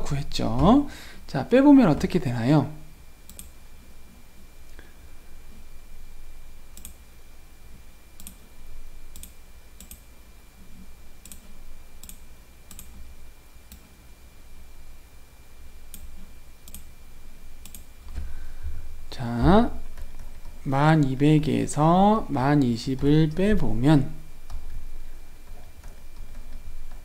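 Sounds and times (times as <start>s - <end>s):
faint high-pitched whine: 0.0s - 27.0s
computer clicks: 3.2s - 3.6s, 6.7s - 7.0s, 8.2s - 8.4s, 9.1s - 10.1s, 11.2s - 13.0s, 15.9s - 16.9s, 17.6s - 17.9s.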